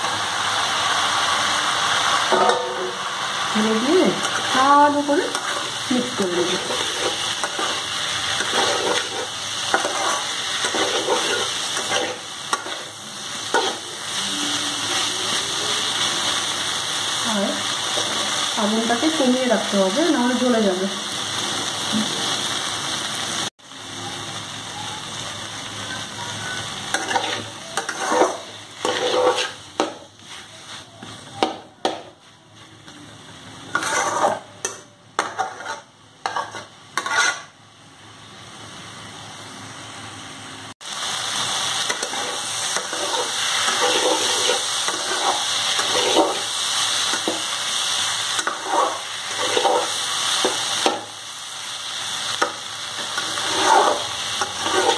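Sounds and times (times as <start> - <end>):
food sizzling in oil: 0.0 - 54.9
spatula scraping a pan: 3.8 - 14.0, 26.4 - 32.2, 33.7 - 37.6, 41.9 - 47.4, 48.3 - 51.0, 52.3 - 54.9.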